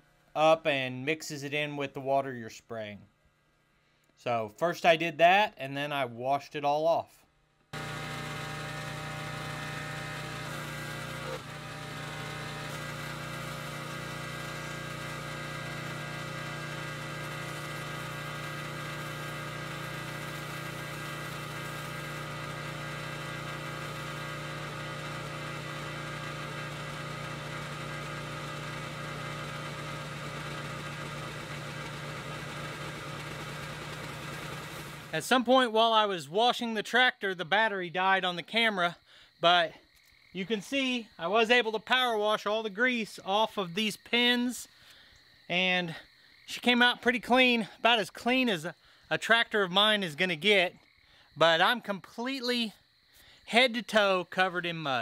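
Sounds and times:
pressure washer engine running: 7.8s - 35.5s.

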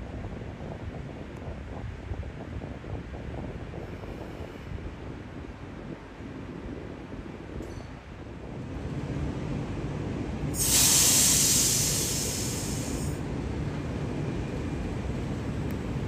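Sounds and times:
train rumbling past: 6.2s - 16.0s
air brakes hissing: 10.5s - 13.2s.

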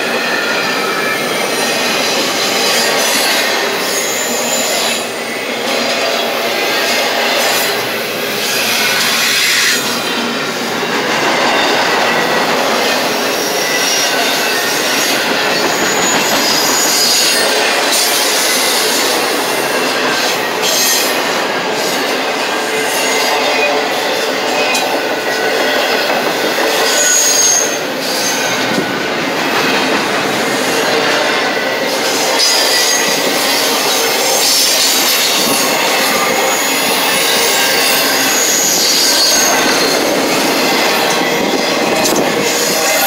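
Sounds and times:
steel wheels running on rails: 0.0s - 43.0s
high-pitched wheel squeals: 12.8s - 19.1s, 26.7s - 28.8s, 32.0s - 43.0s.

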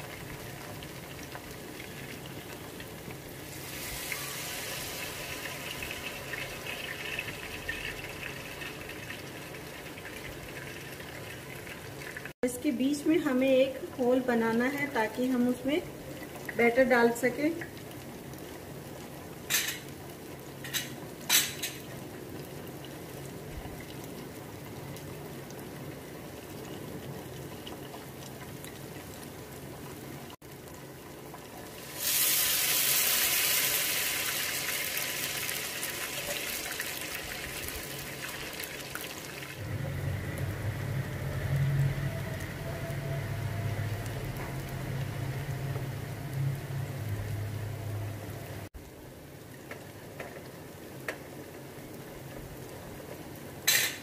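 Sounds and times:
loud hissing sizzle: 0.0s - 12.4s, 31.4s - 49.0s
batter sizzling in hot ghee: 0.0s - 29.7s, 30.4s - 48.8s
low hum: 39.6s - 48.7s.

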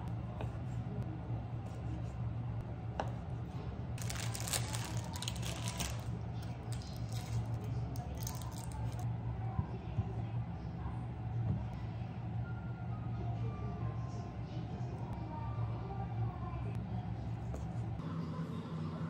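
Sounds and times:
plastic film crinkling and tearing: 4.0s - 9.0s.

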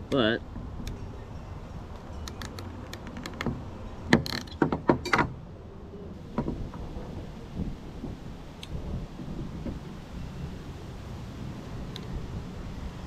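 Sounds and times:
small knocks: 2.2s - 5.4s.

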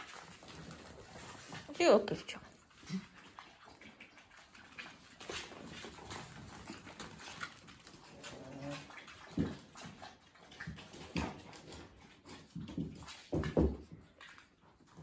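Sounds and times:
knocks on hard floor: 12.8s - 13.9s.

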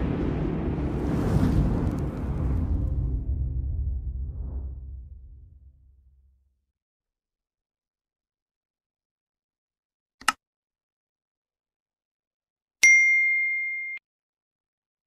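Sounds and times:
short click: 10.2s - 10.4s
bell-like ding: 12.8s - 14.0s.

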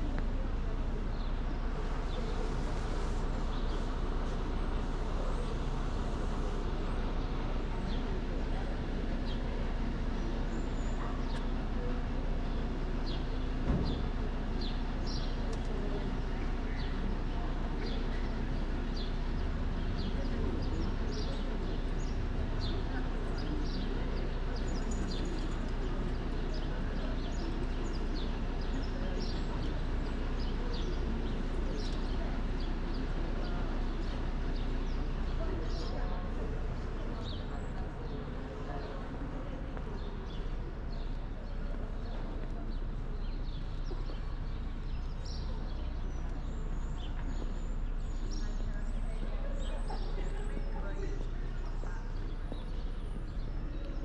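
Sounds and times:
low outdoor rumble: 0.0s - 54.0s
small birds chirping: 12.5s - 54.0s.

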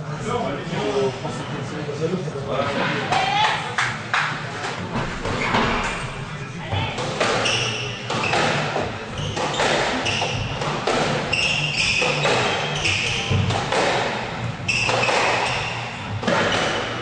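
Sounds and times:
shoes squeaking on wooden floor: 6.8s - 14.0s, 14.6s - 17.0s.

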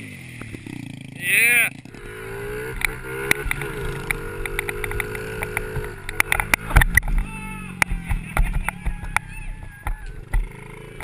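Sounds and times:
dirt bike engine running: 0.0s - 11.0s
low thumps: 1.8s - 11.0s
bike clicking and knocking: 2.6s - 11.0s.

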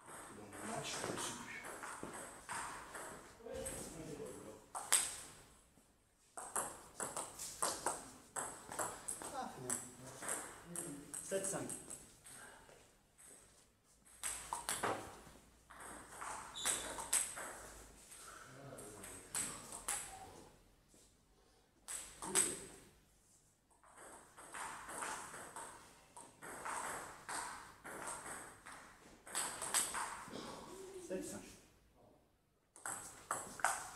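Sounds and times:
table tennis ball bouncing: 0.0s - 3.3s, 6.4s - 12.0s, 14.1s - 17.8s, 23.7s - 30.4s, 32.8s - 33.9s.

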